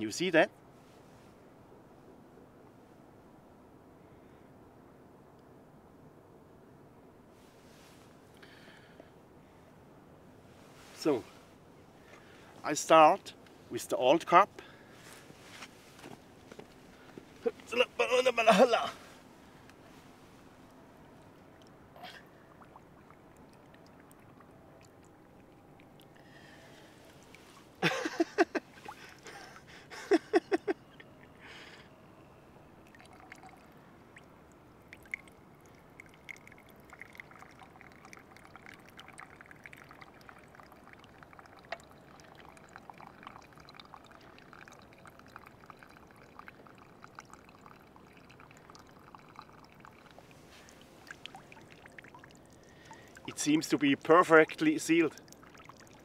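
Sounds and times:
water trickling into cup: 0:20.6 - 0:31.4, 0:32.7 - 0:56.0
water gurgling into can: 0:32.9 - 0:33.7, 0:34.8 - 0:56.0.

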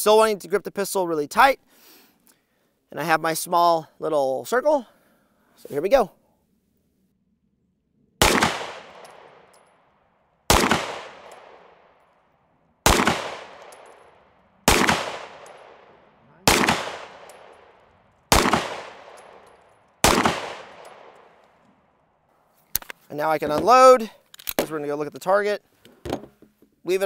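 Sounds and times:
pistol shots with echo: 0:08.2 - 0:12.0, 0:12.8 - 0:21.4.

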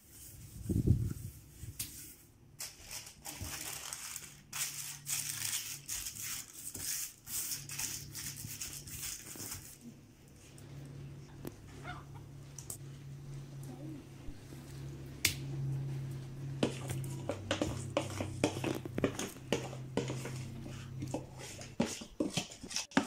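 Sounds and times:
baking paper crinkling: 0:00.0 - 0:10.0.

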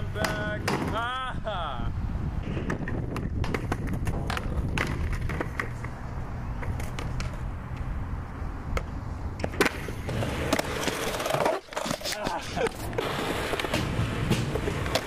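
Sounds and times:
skateboard knocks and clicks: 0:00.2 - 0:01.0, 0:02.4 - 0:06.0, 0:06.6 - 0:07.9, 0:08.7 - 0:15.0.

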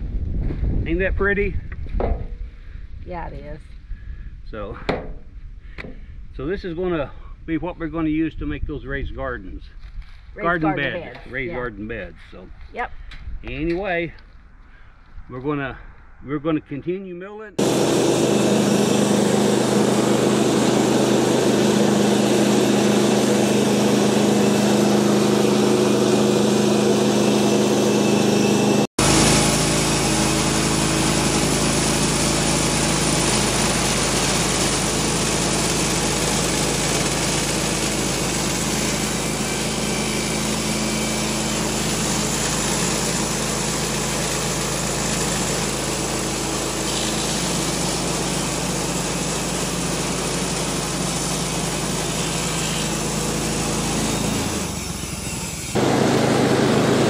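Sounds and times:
sawmill gas engine running: 0:17.6 - 0:57.0.

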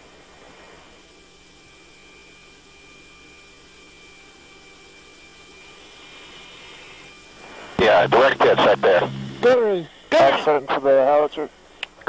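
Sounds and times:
electrical hum and hiss: 0:07.4 - 0:12.0
thin high whine: 0:07.5 - 0:10.8.

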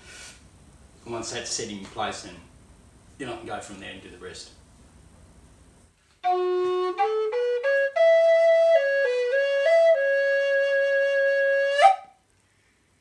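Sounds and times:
breathy puff: 0:00.0 - 0:00.5
wooden flute playing: 0:06.2 - 0:12.2.

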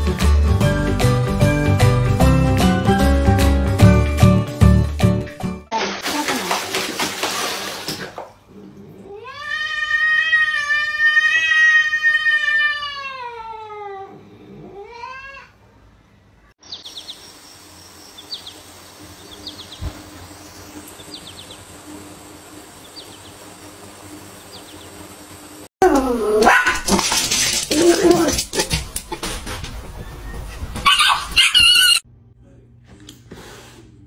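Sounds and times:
cat yowling: 0:09.1 - 0:15.6.

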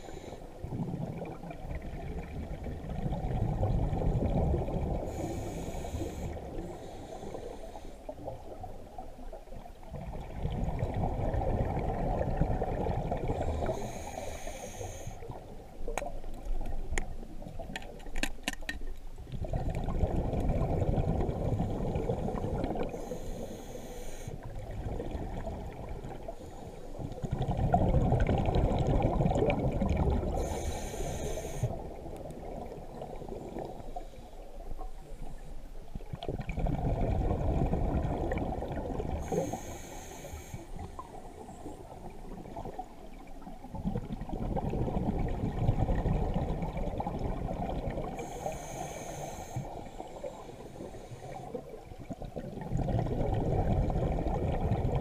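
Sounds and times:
exhaled bubbles rumbling underwater: 0:00.0 - 0:18.1, 0:18.9 - 0:55.0
regulator hiss: 0:13.6 - 0:15.2, 0:23.0 - 0:24.4, 0:30.4 - 0:31.8, 0:39.2 - 0:40.8, 0:48.2 - 0:51.5.

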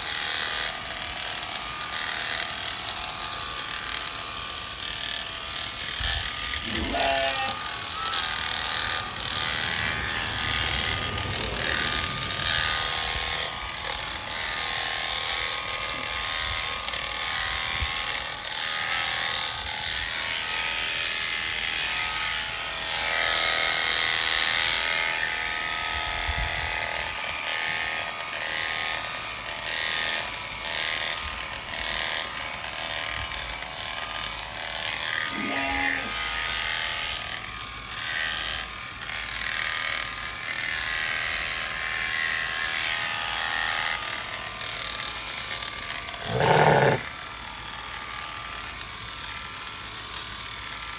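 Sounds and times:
electric clippers buzzing: 0:00.0 - 0:50.9.

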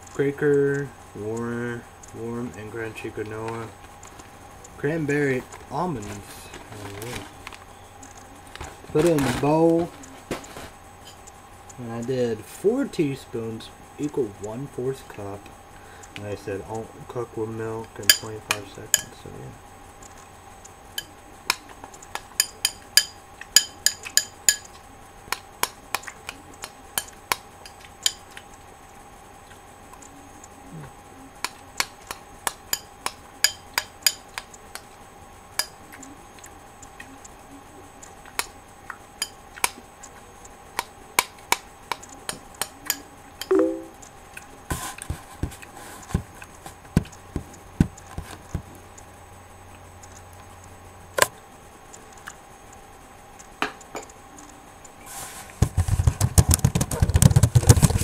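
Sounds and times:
faint steady hum: 0:00.0 - 0:58.0
spoon clinking against bowl: 0:18.1 - 0:18.3.

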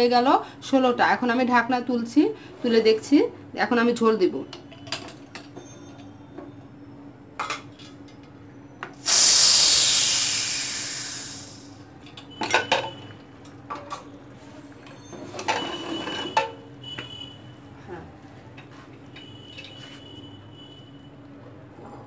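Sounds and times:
steam hissing from valve: 0:09.0 - 0:11.8.

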